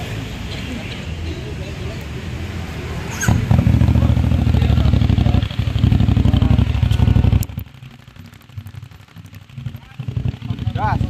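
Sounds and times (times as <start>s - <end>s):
motorcycle engine revving: 3.0s - 11.0s.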